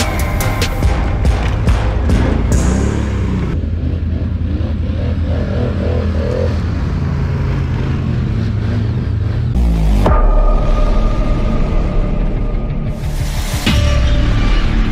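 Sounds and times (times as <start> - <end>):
quad bike engine revving: 1.3 - 10.1.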